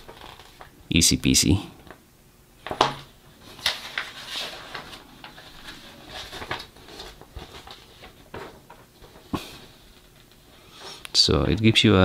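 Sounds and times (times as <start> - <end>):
paper rustling and crackling: 0.0 - 0.8, 2.6 - 10.5.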